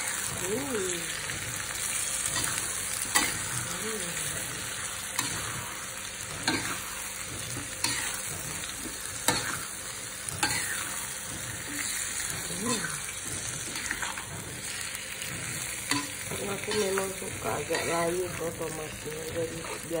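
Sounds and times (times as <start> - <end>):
vegetables sizzling in a wok: 0.0 - 20.0
spatula scraping a pan: 10.3 - 18.5.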